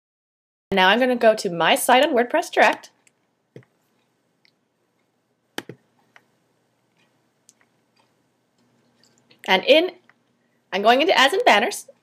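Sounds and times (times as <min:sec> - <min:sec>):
computer mouse clicks: 0:02.9 - 0:10.2.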